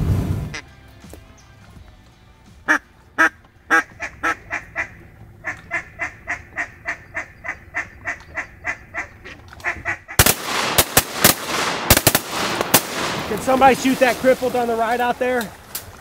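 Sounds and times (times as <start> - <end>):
duck quacking: 0.5 - 0.7, 2.6 - 10.2
shotgun blasts: 10.2 - 14.5.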